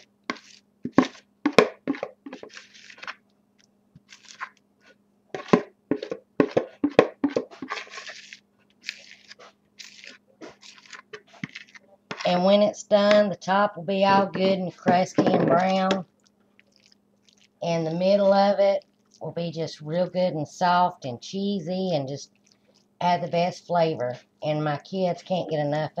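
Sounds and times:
spoon scraping bowl: 0.0 - 3.2, 4.1 - 12.4
wet squelches: 6.6 - 12.4, 15.6 - 17.6, 22.3 - 23.0.

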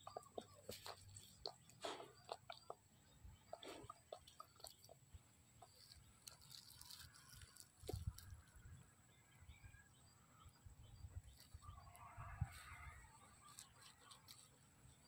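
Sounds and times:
rustling of dry straw: 5.6 - 8.7, 11.3 - 15.0.

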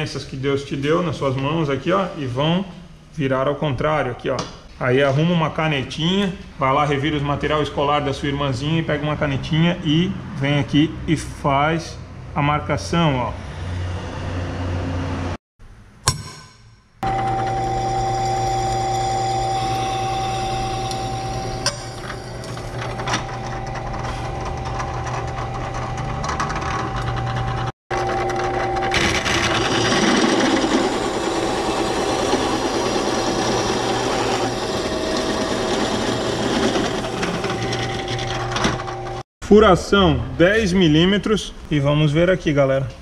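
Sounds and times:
drill bit cutting steel: 17.0 - 23.4, 28.3 - 38.6
drill press motor humming: 17.0 - 39.2.

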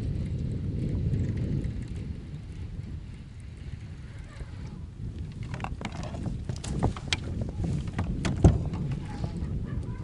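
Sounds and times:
wind rumbling on microphone: 0.0 - 10.0
knocks and clicks on kayak: 5.2 - 9.2.

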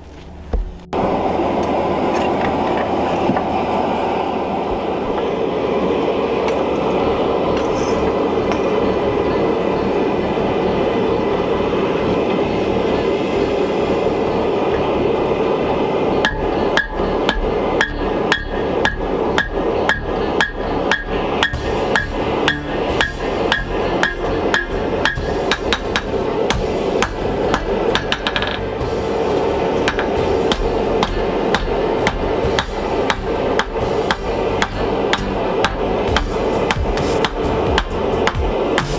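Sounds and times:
gas forge burner roaring: 0.0 - 38.9
hammer blows on metal: 16.2 - 29.2, 29.8 - 38.9.

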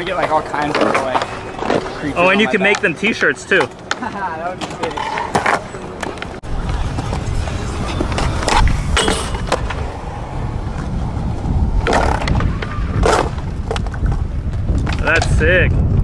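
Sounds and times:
skateboard wheels rolling on concrete: 0.0 - 16.0
skateboard clacks: 2.6 - 9.8.

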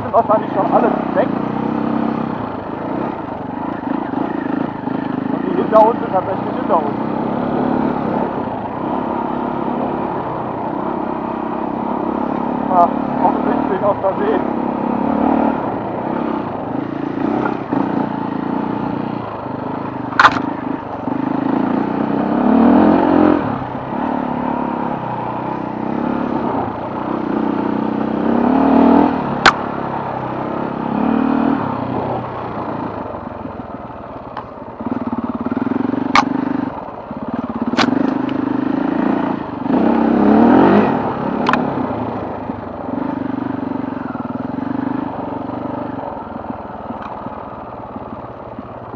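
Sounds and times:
motorcycle engine revving: 0.0 - 48.9
sharp clacks: 20.1 - 20.5, 36.1 - 36.4, 37.7 - 38.4.

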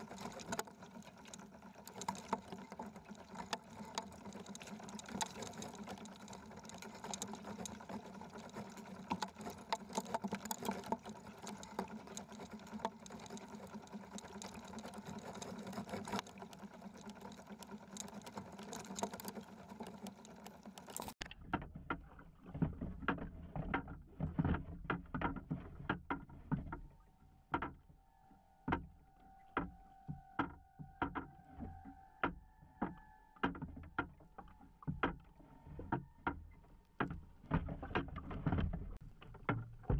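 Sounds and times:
water rushing along hull: 0.0 - 27.0, 29.4 - 39.9
low hum: 26.9 - 39.9.

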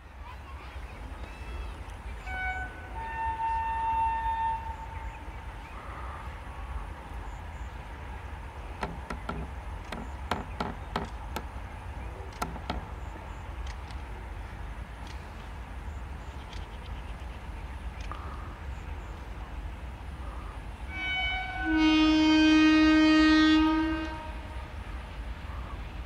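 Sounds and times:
low train rumble: 0.0 - 26.0
locomotive horn: 2.2 - 5.1, 20.9 - 24.9.

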